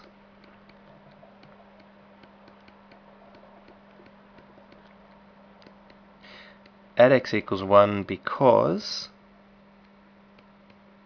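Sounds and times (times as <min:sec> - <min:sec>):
stylus tapping on tablet screen: 0:00.0 - 0:06.0
low electrical hum: 0:00.0 - 0:11.0.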